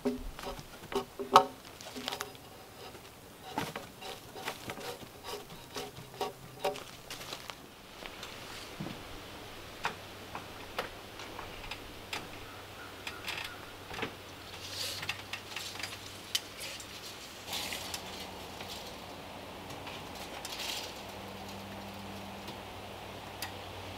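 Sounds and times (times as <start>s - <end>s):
footsteps on metal stepladder: 0.0s - 7.6s.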